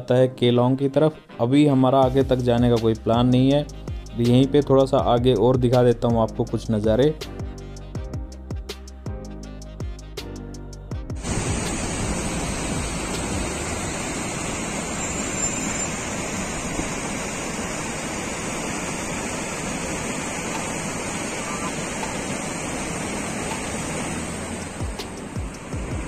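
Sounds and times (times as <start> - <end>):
stream rushing over rocks: 11.2 - 26.0.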